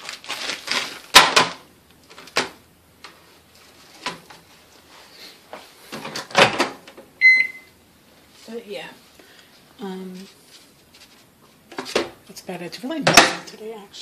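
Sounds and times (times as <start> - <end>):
kitchen items knocking and clicking: 13.0 - 13.5.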